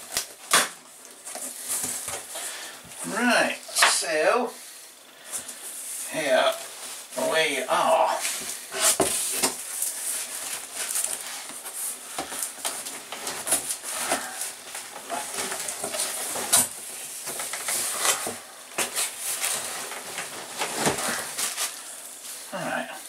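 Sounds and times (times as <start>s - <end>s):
cardboard and bubble wrap rustling: 0.0s - 4.0s, 5.2s - 23.0s
scrapes: 5.2s - 22.5s.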